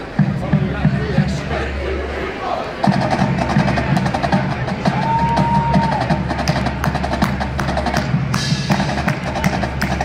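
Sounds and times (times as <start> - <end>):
bass drums: 0.0 - 1.6, 2.8 - 10.0.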